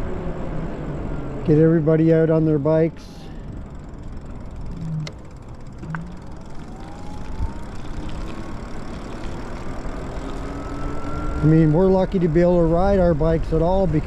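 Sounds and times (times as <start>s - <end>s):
wind and road noise: 0.0s - 14.0s
electric motor whine: 4.4s - 11.7s.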